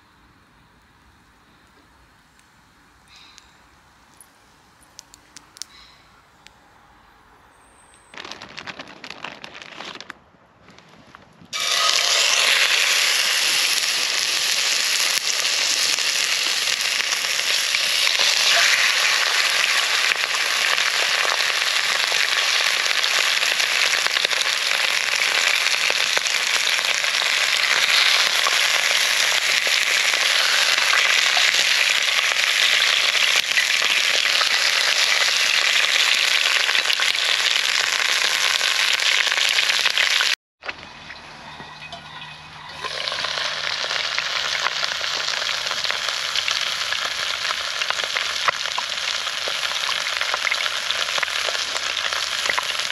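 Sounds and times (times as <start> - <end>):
meat sizzling in a pan: 11.6 - 40.4, 42.8 - 52.9.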